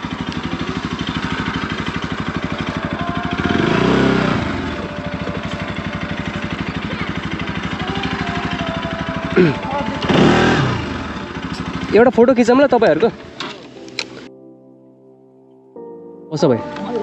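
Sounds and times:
motorcycle engine running: 0.0s - 14.3s.

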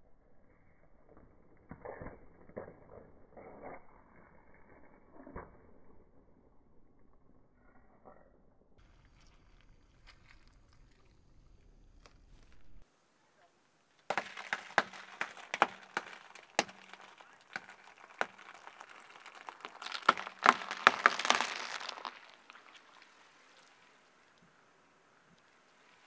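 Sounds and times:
eggshells cracking under tyre: 9.0s - 12.6s, 14.0s - 26.0s.

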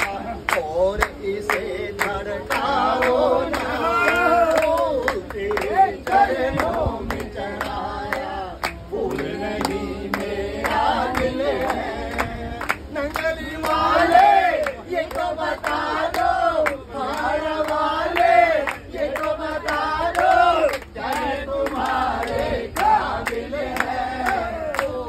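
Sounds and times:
group singing devotional song: 0.0s - 25.0s
hand clapping: 0.0s - 25.0s.

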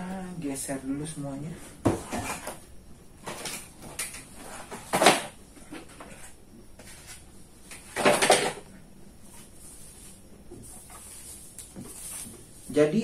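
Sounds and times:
scraping rustling noises: 9.2s - 13.0s.

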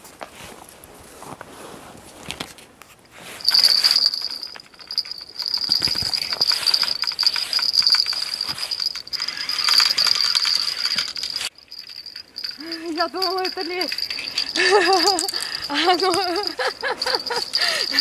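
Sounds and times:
small bell jingling: 3.4s - 18.0s.

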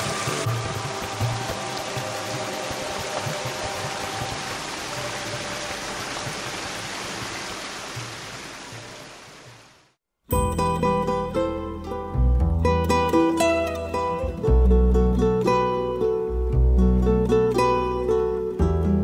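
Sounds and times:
stream rushing over rocks: 0.0s - 10.0s.

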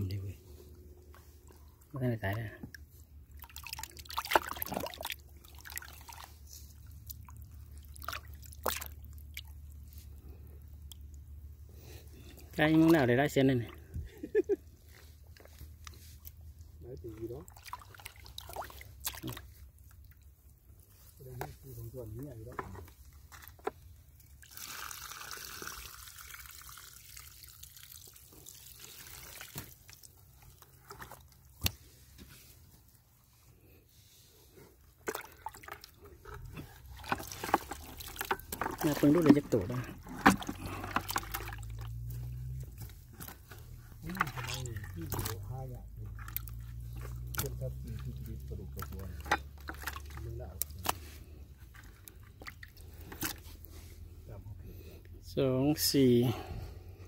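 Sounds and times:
water splashing in plastic tub: 1.4s - 9.9s, 12.4s - 14.4s, 17.1s - 20.4s, 23.5s - 31.9s, 34.9s - 53.8s.

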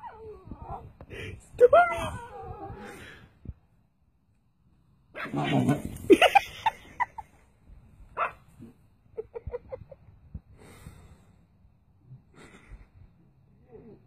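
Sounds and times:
dog barking: 8.2s - 8.4s.

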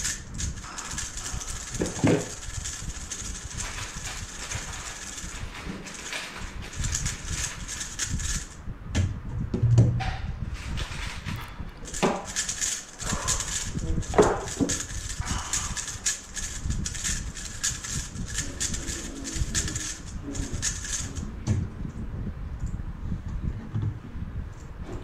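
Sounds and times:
puzzle cube clicking as it turns: 0.0s - 8.6s, 10.8s - 21.3s.

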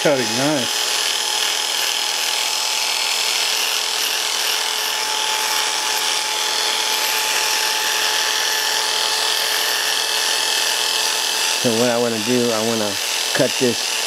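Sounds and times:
electric hair clippers buzzing: 0.0s - 14.0s.

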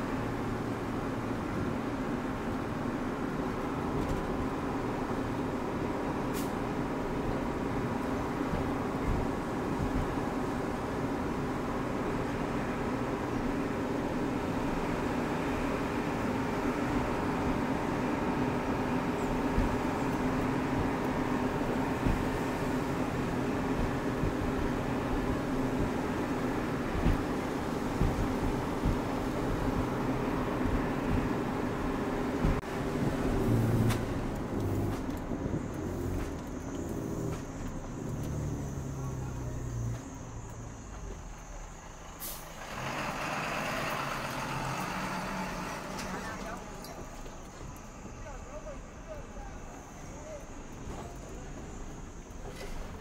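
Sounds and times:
road and wind noise: 0.0s - 53.0s
truck engine running: 0.0s - 53.0s
low thumps: 26.8s - 38.9s
short hiss: 42.2s - 43.1s.

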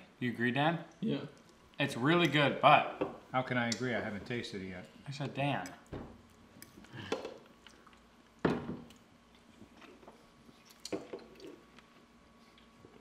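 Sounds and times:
person chewing: 6.3s - 13.0s.

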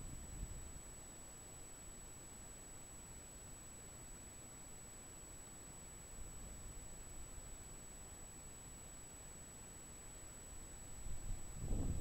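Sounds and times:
wind buffeting microphone: 11.3s - 12.0s.

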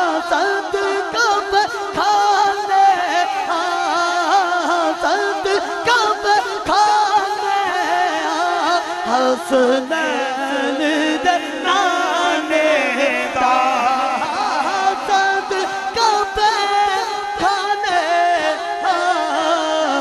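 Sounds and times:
man singing into a microphone: 0.0s - 20.0s.

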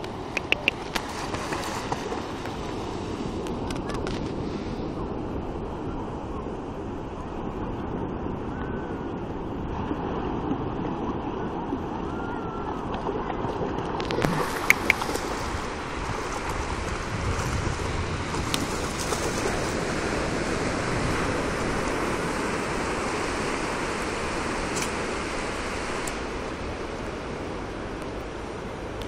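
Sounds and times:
ocean surf: 0.0s - 29.0s
sharp clicks: 0.3s - 1.0s, 14.1s - 15.2s.

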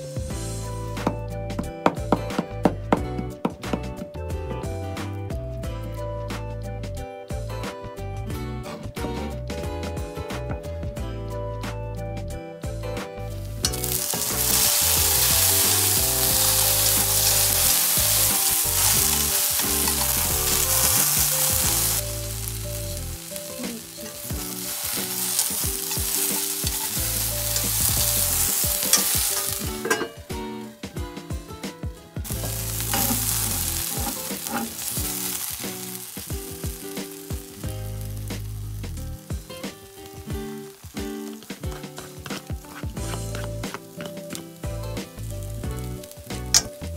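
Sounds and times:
vegetables sizzling in frying pan: 13.4s - 30.7s, 32.2s - 46.9s
wooden spatula scraping: 13.8s - 30.1s, 32.3s - 35.5s, 41.6s - 44.2s
pan lid coming off: 28.8s - 30.3s, 32.4s - 34.9s.

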